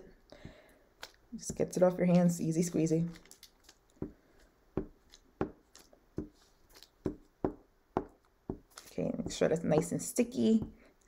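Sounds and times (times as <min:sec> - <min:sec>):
glue stick knocking on paper: 0:04.8 - 0:05.6, 0:07.0 - 0:10.8.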